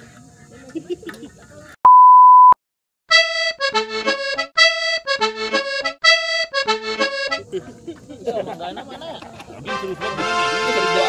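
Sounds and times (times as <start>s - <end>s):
loud pure beep tone: 1.9s - 2.6s
reedy accordion-like music phrase: 3.1s - 7.5s, 9.6s - 11.0s.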